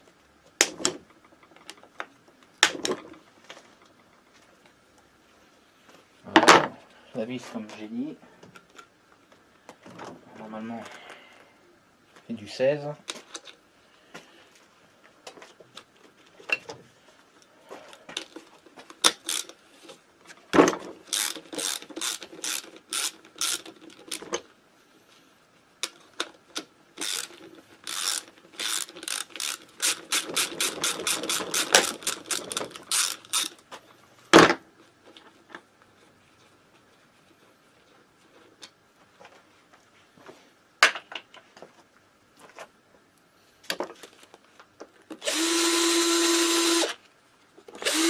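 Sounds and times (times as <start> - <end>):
ratchet wrench clicking: 19.0 - 19.5, 21.1 - 24.2, 27.0 - 33.5.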